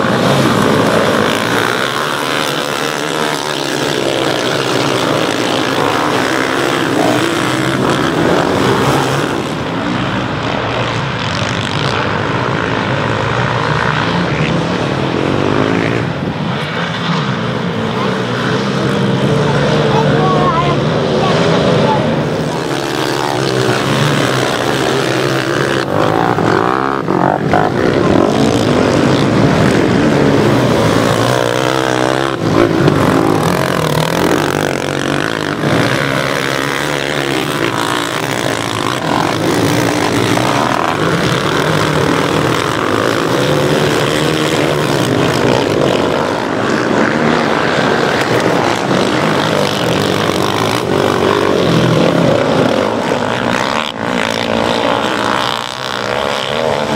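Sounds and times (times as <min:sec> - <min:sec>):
quad bike engines revving: 0:00.0 - 0:56.9.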